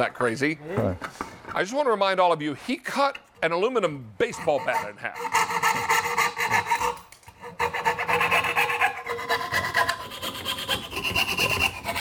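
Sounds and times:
hand saw rasping through wood: 0:04.2 - 0:12.0.

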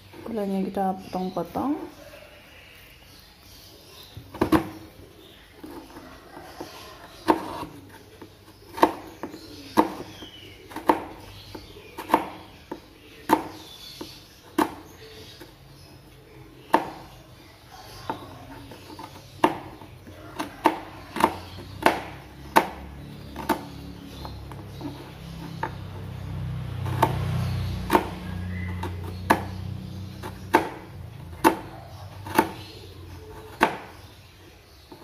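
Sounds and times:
knife chopping sugar on cutting board: 0:31.4 - 0:32.7.

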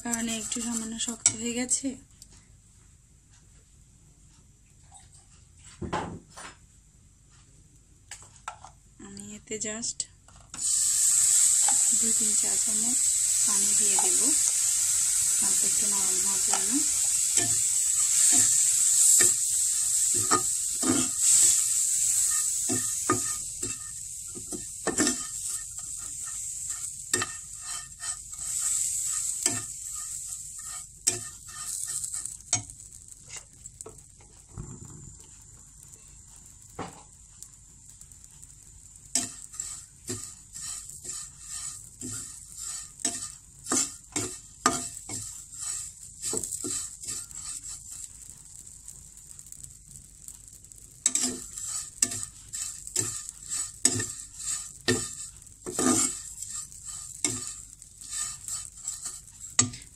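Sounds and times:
metal spatula scraping a pan: 0:00.0 - 0:01.5, 0:10.6 - 0:34.0, 0:39.1 - 0:48.3, 0:50.7 - 0:59.9
noodles sizzling in a frying pan: 0:00.0 - 0:02.1, 0:10.6 - 0:59.9.

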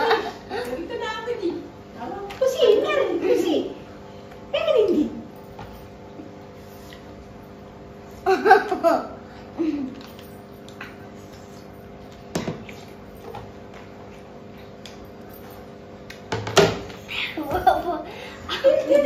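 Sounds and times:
child giggling: 0:08.2 - 0:10.0, 0:17.1 - 0:19.0.

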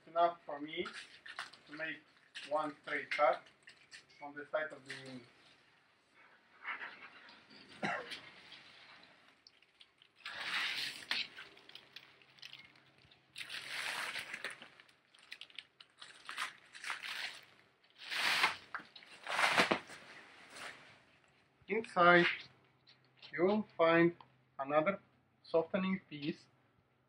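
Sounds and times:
plastic wrap crinkling and tearing: 0:01.0 - 0:04.1, 0:08.2 - 0:20.8.

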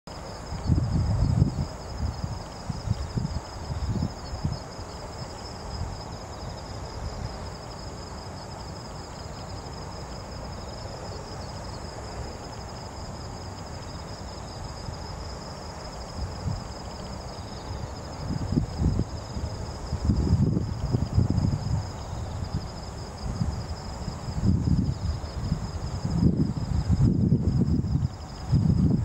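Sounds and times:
high-pitched pulsing insect chirr: 0:00.1 - 0:29.0
wind rumble on microphone: 0:00.2 - 0:07.7, 0:14.1 - 0:29.0.

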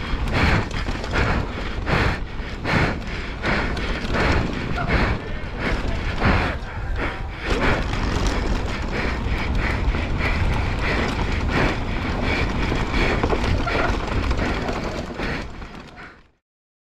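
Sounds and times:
wind rushing over microphone: 0:00.0 - 0:15.7
tyres on dirt track: 0:00.0 - 0:16.4
bike knocking over bumps: 0:07.4 - 0:16.2.

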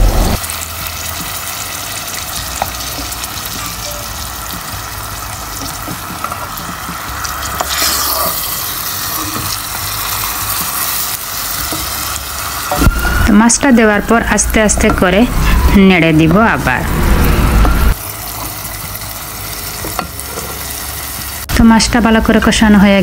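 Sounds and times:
fish sizzling in a pot: 0:00.4 - 0:13.5, 0:17.9 - 0:22.6
wooden spoon scraping a pot: 0:07.5 - 0:11.1.

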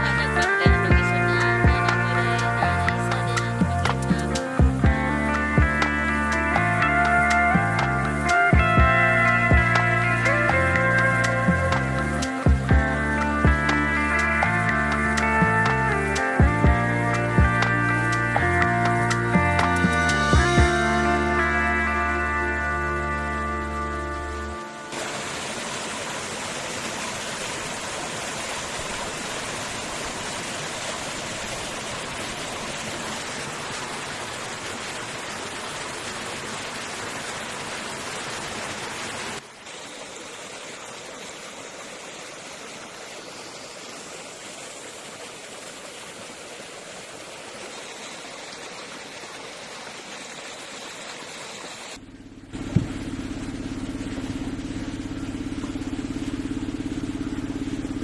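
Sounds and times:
low engine hum: 0:00.0 - 0:39.6, 0:50.4 - 0:58.0
stream splashing over stones: 0:00.0 - 0:58.0
sharp knock: 0:52.7 - 0:53.0.

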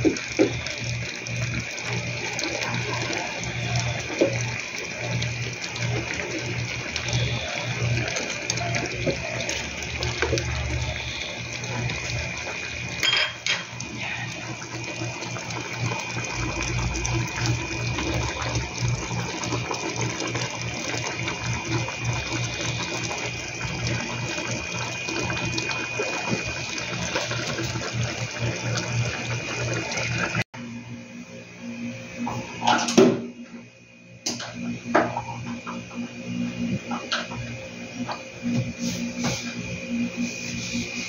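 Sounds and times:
curry bubbling in a pan: 0:00.0 - 0:30.5.

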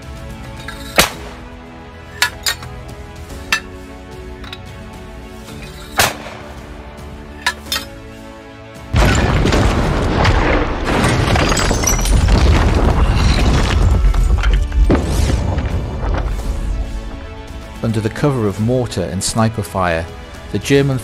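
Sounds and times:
background music: 0:00.0 - 0:21.0
gunshots: 0:06.0 - 0:06.5
mortar explosions: 0:08.9 - 0:17.3.

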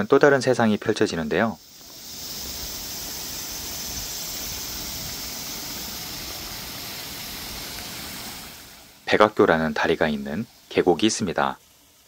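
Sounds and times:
stream cascading over rocks: 0:01.8 - 0:09.7.

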